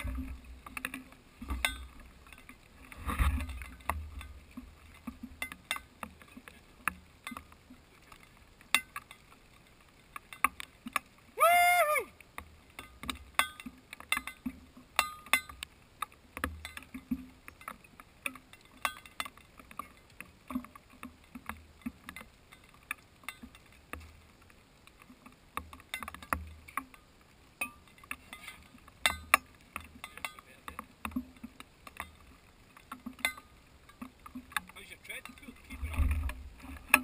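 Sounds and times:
raindrops ticking on camera housing: 0.0 - 37.0
faint low rumble: 33.4 - 37.0.

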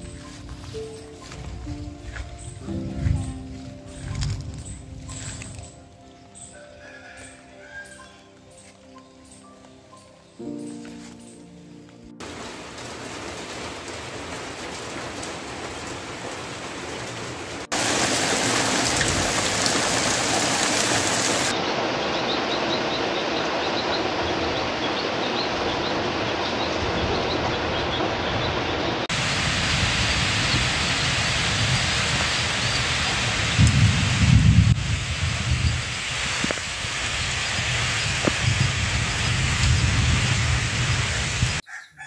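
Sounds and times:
heavy rain hissing: 12.2 - 41.6
low rumble: 24.1 - 41.6.

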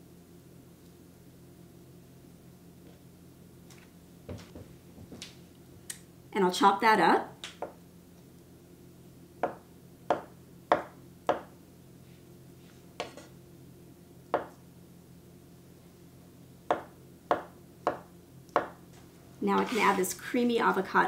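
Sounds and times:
knife chopping on wooden board: 9.4 - 11.5, 13.0 - 13.3, 14.4 - 14.6, 16.7 - 18.8.

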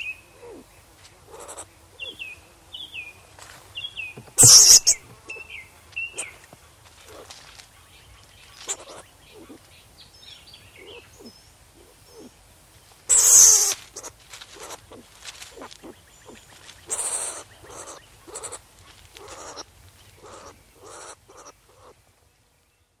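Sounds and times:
skunk harsh hissing call: 1.2 - 2.2, 4.4 - 5.4, 6.1 - 6.4, 8.6 - 9.6, 13.1 - 22.0
skunk raspy calls: 1.2 - 2.2, 4.4 - 9.7, 10.7 - 12.4, 13.1 - 22.0
skunk chirping: 1.3 - 2.4, 3.8 - 9.7, 10.7 - 12.4, 13.1 - 22.0.

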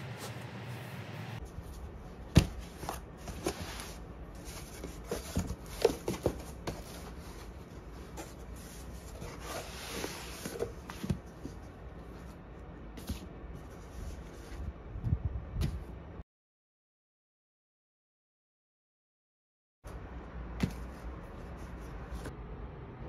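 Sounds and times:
paper and cardboard rustling: 0.0 - 12.4.

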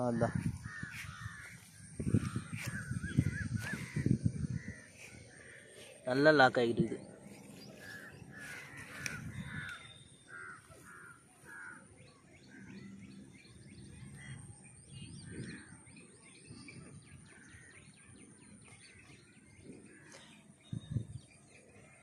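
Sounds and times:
bird calling: 0.0 - 15.8
faint small birds chirping: 0.0 - 22.0.

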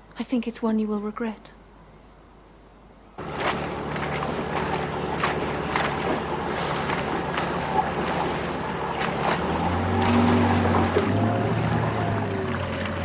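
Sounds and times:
wind: 0.0 - 13.0
low steady drone: 3.1 - 13.0
water slapping sharply: 3.2 - 13.0
waves around a boat: 3.2 - 13.0.

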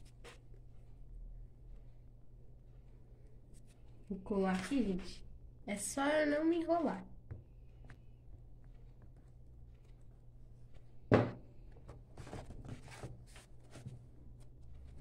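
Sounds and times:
book being handled: 0.0 - 5.2, 7.6 - 15.0
thump against tabletop: 11.1 - 11.4.

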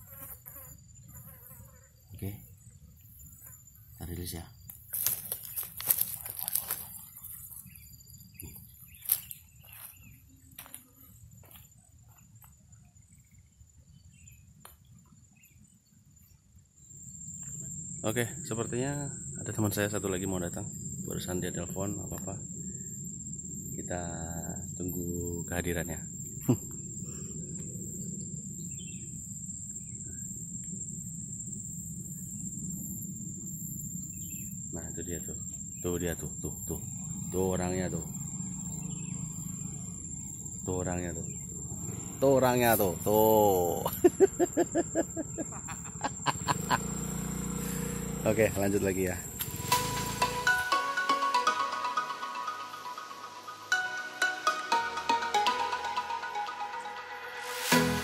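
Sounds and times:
high insect drone: 0.0 - 58.0
rustling in grass: 4.9 - 7.5, 49.4 - 50.6.

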